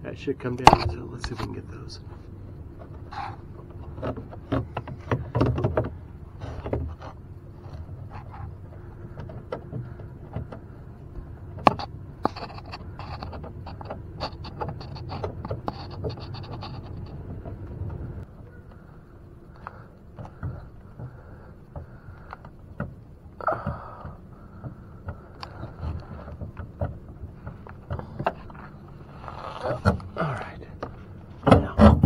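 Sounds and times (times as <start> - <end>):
low handling rumble: 0.0 - 32.0
small clicks and knocks: 2.8 - 30.2
scratchy scraping: 11.6 - 18.3, 27.3 - 32.0.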